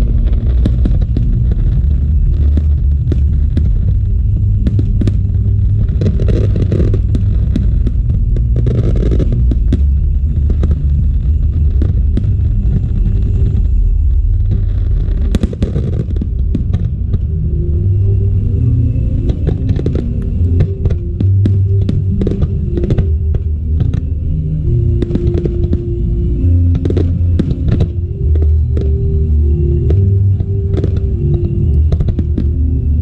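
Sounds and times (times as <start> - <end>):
sharp cracks: 0.0 - 17.2
low rumble of booms: 0.0 - 33.0
fireworks shells bursting: 24.9 - 26.0, 26.7 - 29.0.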